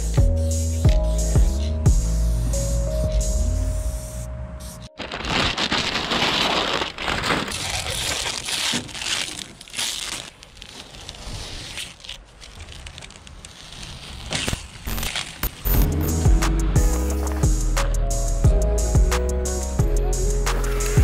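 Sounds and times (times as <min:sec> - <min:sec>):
masking tape peeling: 0:04.7 - 0:16.1
paper crinkling and crumpling: 0:04.9 - 0:15.9.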